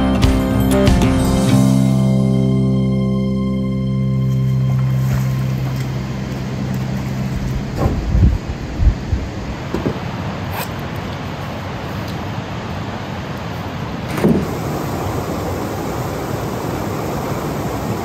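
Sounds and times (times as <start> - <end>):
river water rushing over rocks: 4.6 - 18.0.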